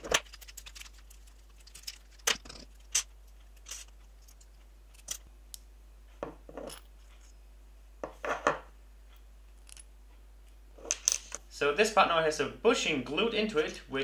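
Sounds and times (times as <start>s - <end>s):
small metal parts clinking: 0.0s - 5.3s.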